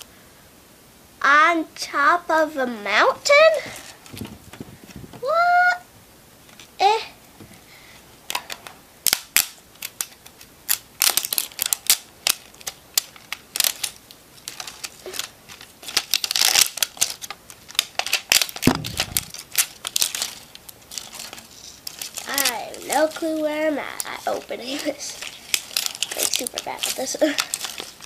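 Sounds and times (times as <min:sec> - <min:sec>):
toy wrapping crinkling: 0:09.1 - 0:28.0.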